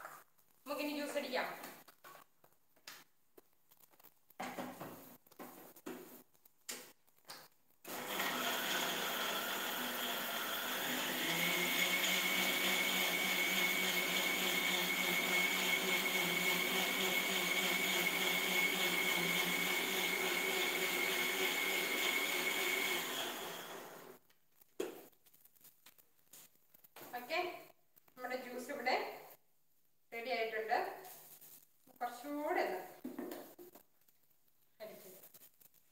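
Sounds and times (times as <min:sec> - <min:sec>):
mixer grinder motor whine: 0:07.9 - 0:24.2.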